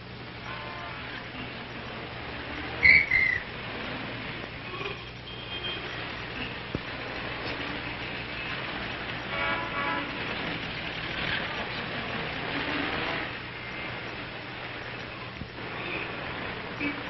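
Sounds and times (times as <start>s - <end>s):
city street traffic: 0.0s - 17.0s
car horn: 0.4s - 1.3s, 9.3s - 10.3s.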